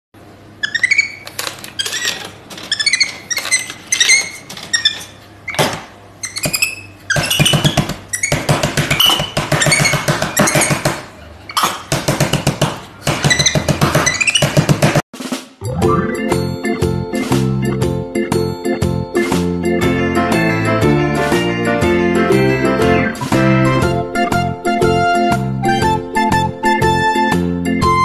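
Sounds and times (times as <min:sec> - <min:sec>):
monkey squeaking and chirping: 0:00.6 - 0:05.2, 0:06.2 - 0:10.9.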